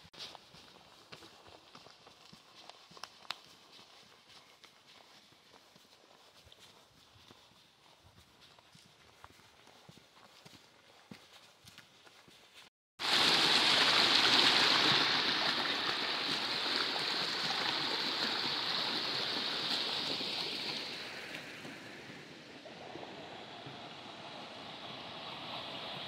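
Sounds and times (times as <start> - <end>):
river water rushing over rocks: 13.0 - 22.0.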